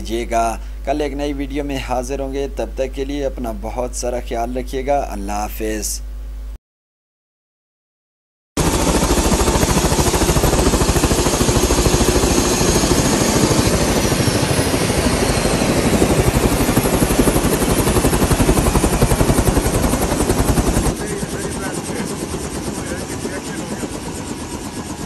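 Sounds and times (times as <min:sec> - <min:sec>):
helicopter rotor chopping: 0:08.6 - 0:25.0.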